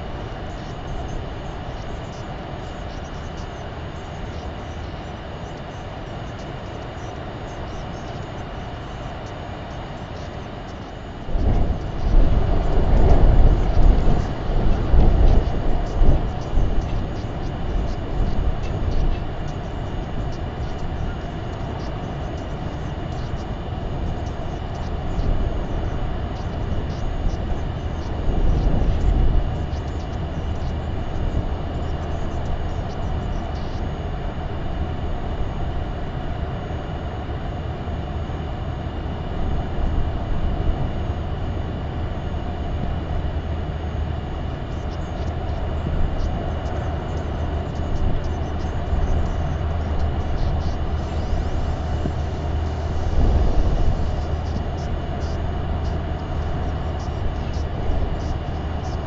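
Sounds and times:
wind rumble on microphone: 11.1s - 36.1s, 38.8s - 59.0s.

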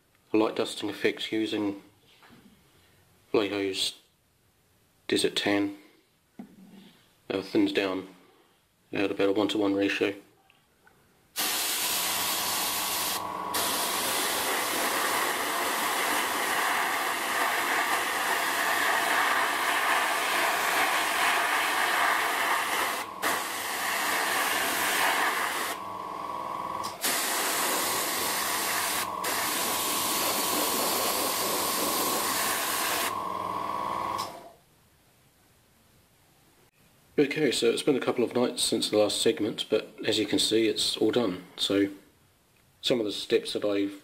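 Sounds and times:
airbrush spraying paint: 11.4s - 25.8s, 26.8s - 33.2s
steady hum: 11.8s - 34.5s.

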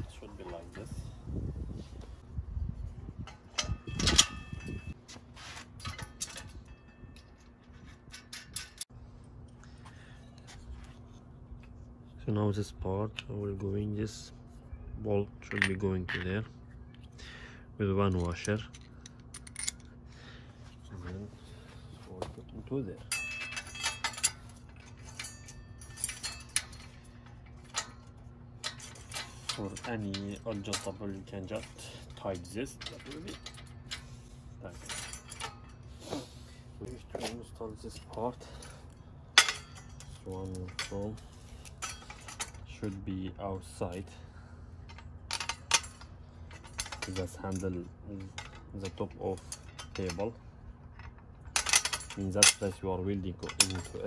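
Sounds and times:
metal clinks and knocks: 3.1s - 8.9s, 18.0s - 20.0s, 21.6s - 44.2s, 44.8s - 54.0s
metal clank ringing: 3.2s - 5.0s, 23.0s - 34.1s.

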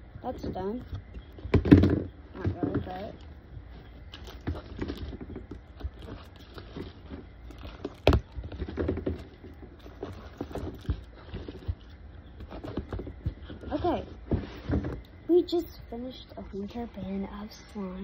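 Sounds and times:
plastic containers clattering: 6.6s - 11.8s.

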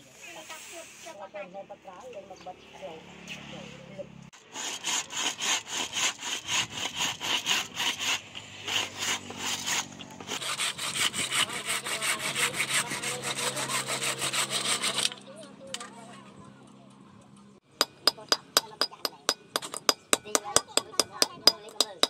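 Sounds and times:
handsaw cutting wood: 4.4s - 15.2s.

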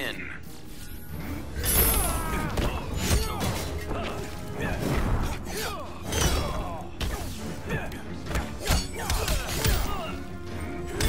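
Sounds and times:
dramatic film score: 0.0s - 11.0s.

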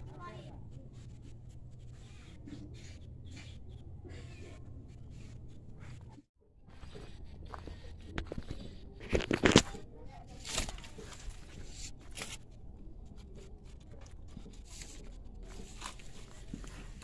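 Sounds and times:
leaves and stems crackling: 9.1s - 12.5s.

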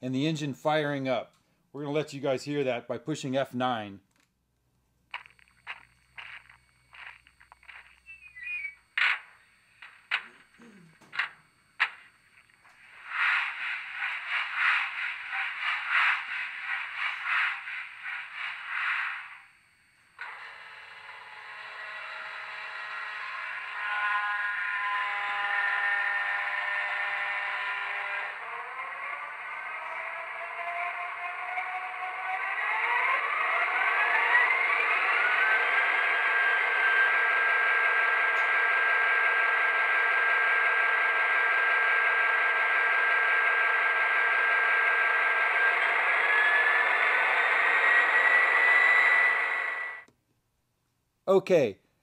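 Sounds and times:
thin high whine: 5.1s - 50.1s
model diesel engine sound: 28.2s - 50.0s.

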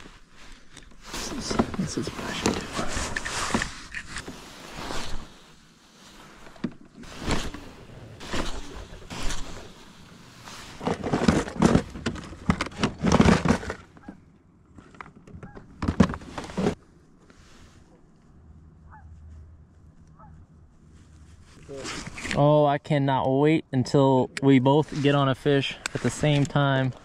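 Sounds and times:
plastic boxes clattering: 10.7s - 14.1s, 14.8s - 16.8s.

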